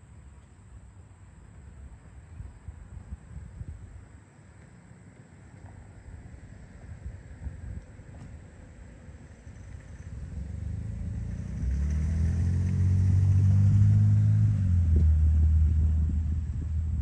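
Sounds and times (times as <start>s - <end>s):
vehicle driving past: 9.2s - 17.0s.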